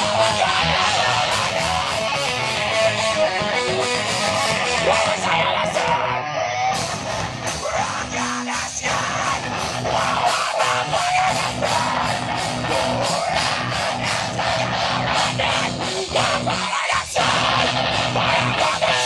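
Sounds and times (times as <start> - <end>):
drum kit: 0.0 - 5.2, 6.8 - 16.6
bass guitar: 0.0 - 19.0
electric guitar: 0.0 - 19.0.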